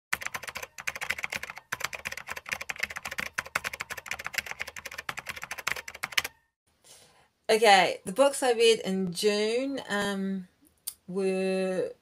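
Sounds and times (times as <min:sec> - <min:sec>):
rapid keyboard typing: 0:00.1 - 0:06.4.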